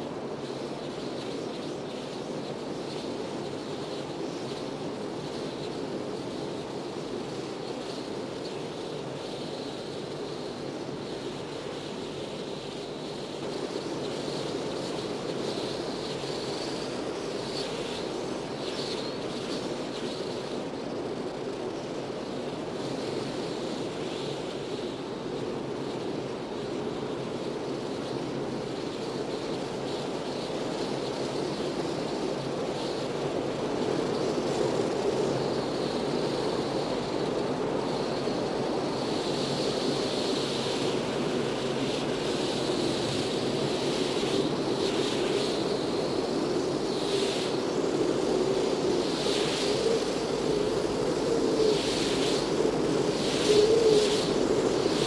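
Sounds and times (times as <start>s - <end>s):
wind buffeting the microphone: 0.0s - 55.0s
strong wind blowing: 20.7s - 55.0s.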